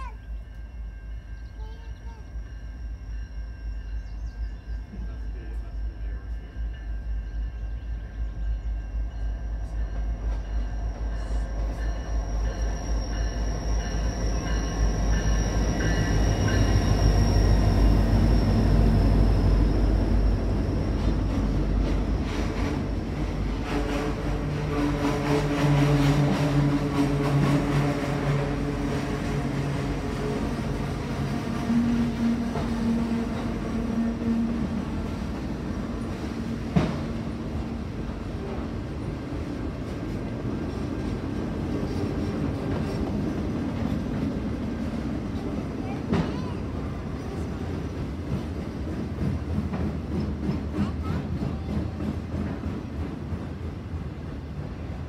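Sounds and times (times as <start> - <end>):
locomotive engine rumble: 0.0 - 55.0
high wheel squeal: 12.1 - 23.1.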